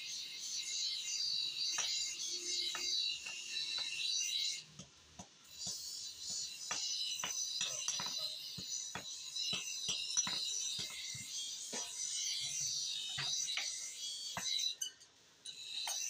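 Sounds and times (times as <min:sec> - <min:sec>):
hammer striking metal on anvil: 0:01.8 - 0:04.5, 0:05.6 - 0:14.7.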